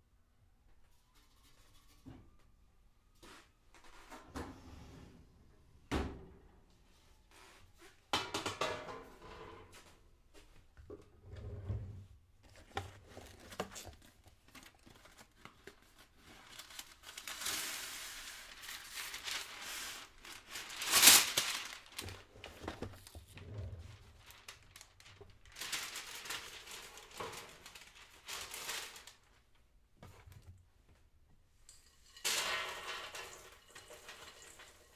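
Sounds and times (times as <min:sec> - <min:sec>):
packaging crinkling and rustling: 0:12.4 - 0:29.5.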